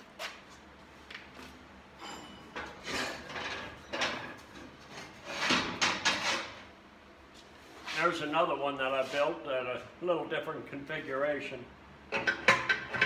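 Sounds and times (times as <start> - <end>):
steel parts clunking and scraping: 1.9 - 6.7.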